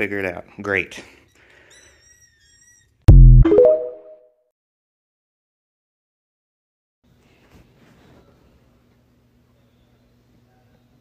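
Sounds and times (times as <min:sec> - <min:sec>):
deep bass hit: 0:03.1 - 0:03.5
synthesized chime: 0:03.1 - 0:04.2.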